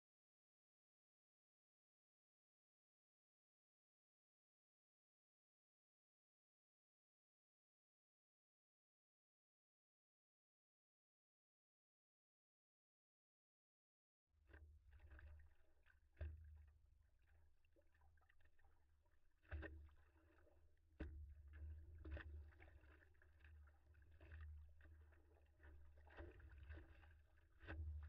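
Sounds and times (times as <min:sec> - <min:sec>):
water slapping against paddleboard: 0:14.8 - 0:28.0
sharp splashes: 0:21.4 - 0:28.0.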